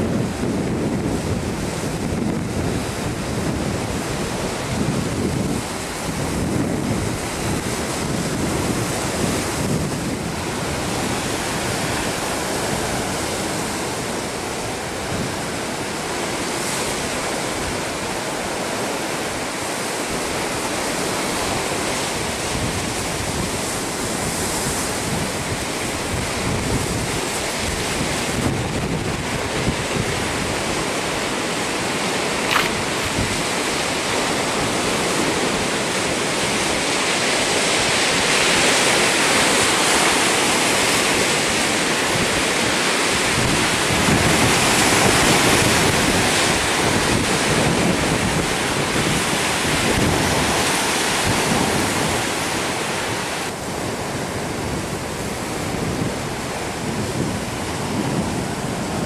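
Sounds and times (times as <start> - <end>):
surf on shore: 0.0 - 59.0
wind on microphone: 0.0 - 59.0.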